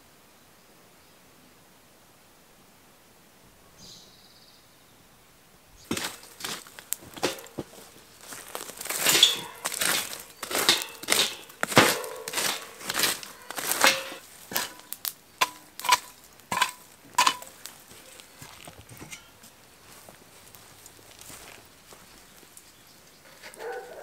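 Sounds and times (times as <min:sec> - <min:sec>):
embers scraped in a metal drum: 0:05.9 - 0:19.5, 0:23.2 - 0:24.0
sharp metallic clinks: 0:09.0 - 0:14.8.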